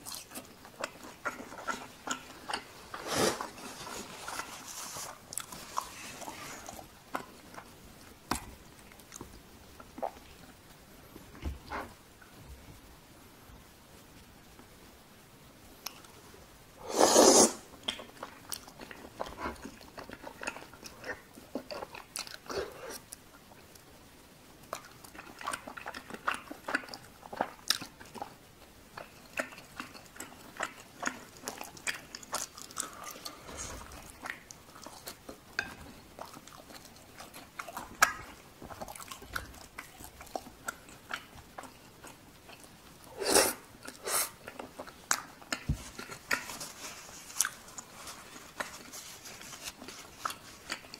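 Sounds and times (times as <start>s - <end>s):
chewing with wet mouth clicks: 0.0s - 2.7s, 17.8s - 22.7s, 24.7s - 43.1s, 43.8s - 46.7s, 49.8s - 50.9s.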